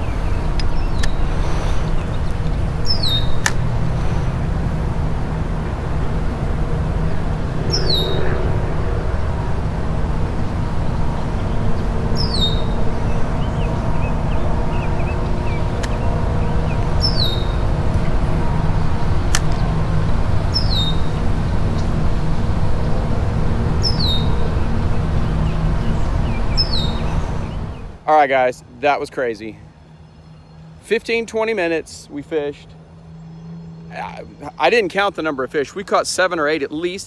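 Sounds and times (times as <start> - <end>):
road traffic rumble: 0.0 - 37.0
sharp clicks: 0.5 - 1.2.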